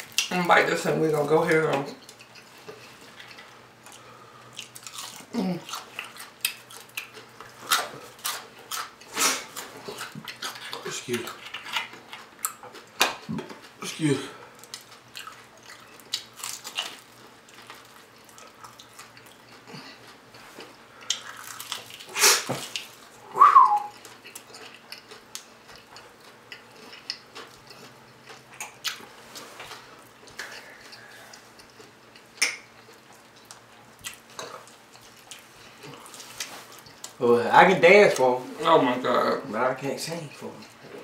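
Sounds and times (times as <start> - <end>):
crunching fried chicken: 0.0 - 23.1
chewing: 1.4 - 23.1, 23.7 - 37.2, 40.3 - 41.0.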